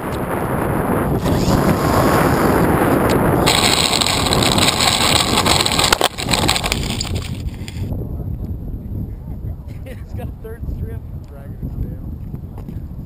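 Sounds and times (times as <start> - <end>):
wind rumble on microphone: 0.0 - 13.0
aircraft hitting dirt knocks: 1.2 - 7.8.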